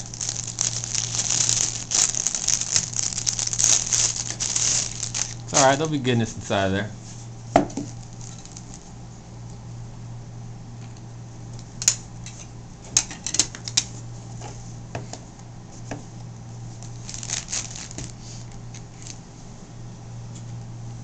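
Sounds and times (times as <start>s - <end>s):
card pack rustle: 0.0s - 6.0s, 7.8s - 8.9s, 16.8s - 19.2s
steady low hum: 0.0s - 21.0s.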